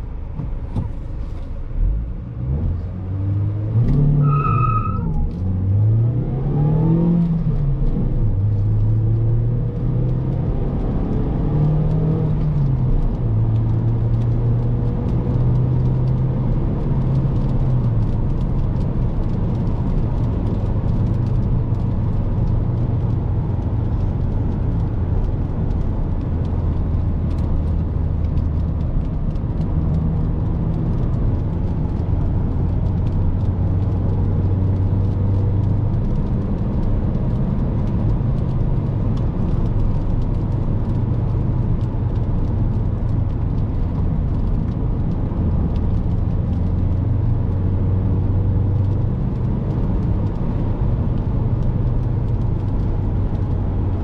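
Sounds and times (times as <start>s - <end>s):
car engine accelerating: 0.0s - 54.0s.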